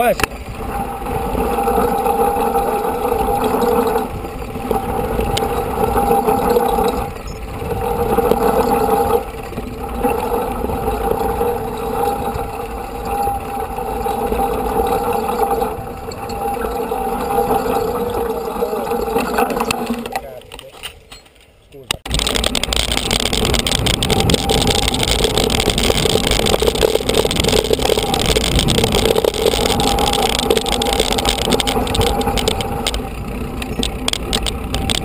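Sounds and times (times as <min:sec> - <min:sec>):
steady mechanical buzz: 0:00.0 - 0:20.2, 0:21.9 - 0:35.0
bikes rolling over gravel: 0:00.0 - 0:35.0
wind on microphone: 0:00.4 - 0:19.1, 0:22.1 - 0:35.0
tyre rumble: 0:22.1 - 0:35.0.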